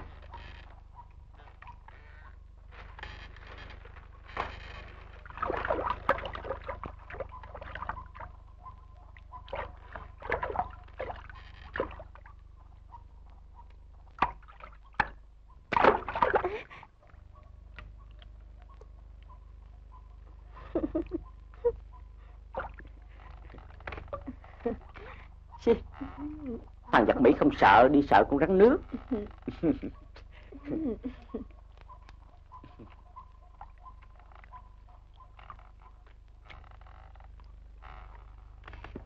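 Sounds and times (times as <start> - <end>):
wooden poles and reed thatch rustling: 0.0 - 16.4
water sloshing: 0.0 - 30.3, 31.0 - 39.0
steady low hum: 0.0 - 39.0.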